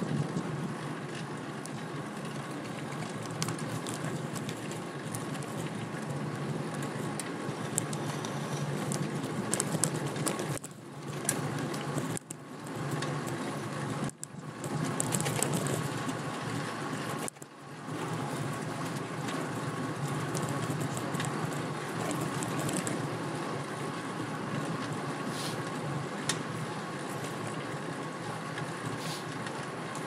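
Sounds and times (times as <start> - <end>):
road and wind noise: 0.0 - 30.0
small clicks: 1.2 - 6.0, 6.7 - 16.2, 17.0 - 23.1.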